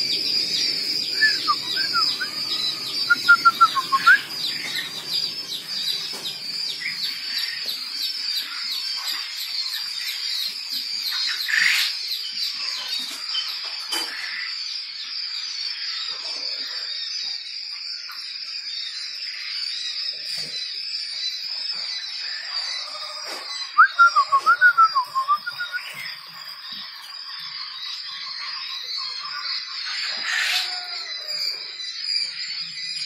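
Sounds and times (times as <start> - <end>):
quail chicks peeping: 0.0 - 33.0.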